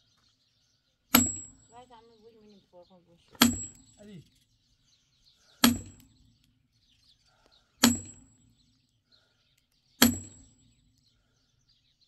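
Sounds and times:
birds chirping faintly: 0.0s - 12.0s
sledgehammer striking steel wedge: 1.1s - 1.7s, 3.4s - 4.1s, 5.6s - 6.1s, 7.8s - 8.4s, 10.0s - 10.6s.

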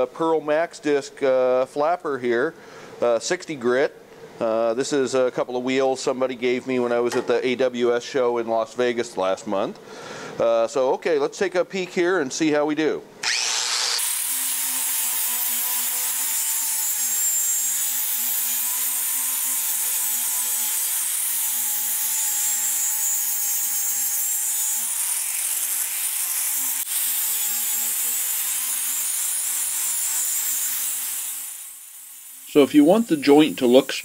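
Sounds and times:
angle grinder grinding steel: 13.2s - 34.0s.

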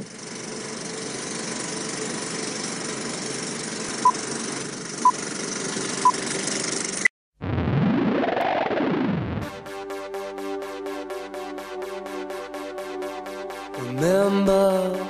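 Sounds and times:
film projector whirring rattle: 0.0s - 7.1s.

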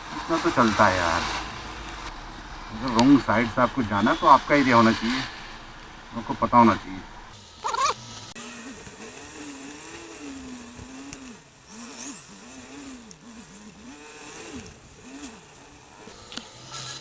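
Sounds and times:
tyre hiss on wet road: 0.0s - 7.6s
motorcycle engine revving: 0.0s - 17.0s.

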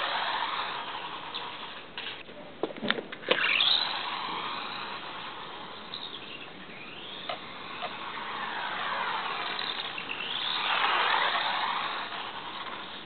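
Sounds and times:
electric motor whining: 3.4s - 13.0s.

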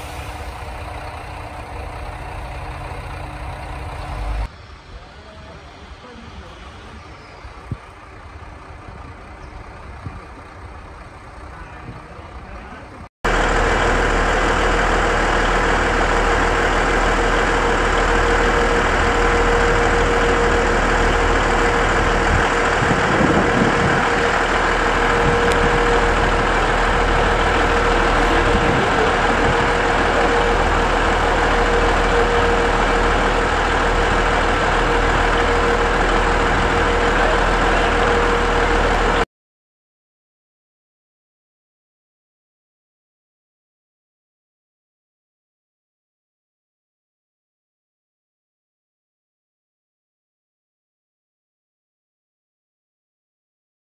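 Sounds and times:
diesel railcar engine idling: 0.0s - 39.2s
station yard background: 0.0s - 39.2s.

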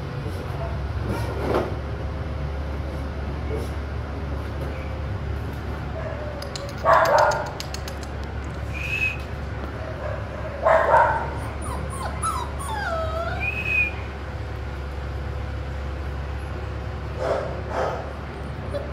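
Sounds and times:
puppies yapping: 6.0s - 8.1s, 9.7s - 14.1s
puppies whining: 10.2s - 14.1s.

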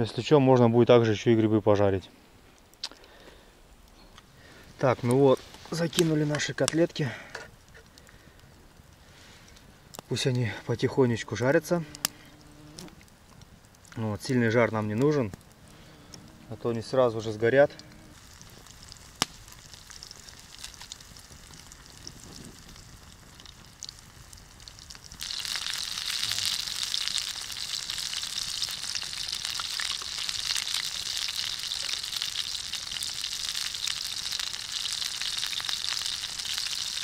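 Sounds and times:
fish sizzling in oil: 18.0s - 37.0s.

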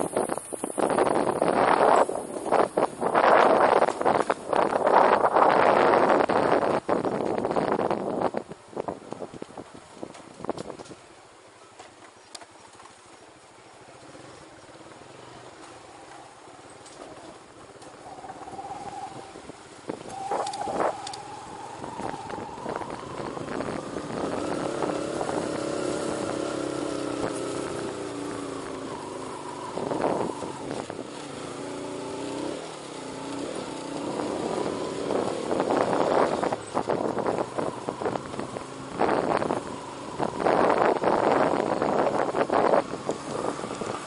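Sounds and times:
wind rushing on microphone: 0.0s - 11.1s, 15.6s - 44.0s
motorcycle engine running: 14.0s - 44.0s.

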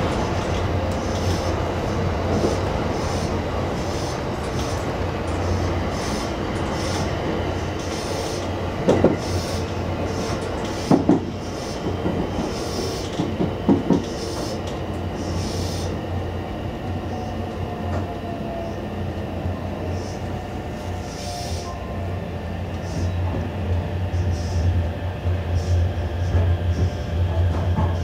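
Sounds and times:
wheels clacking over track joints: 0.0s - 9.4s, 10.0s - 15.1s
electric train running: 0.0s - 28.0s.

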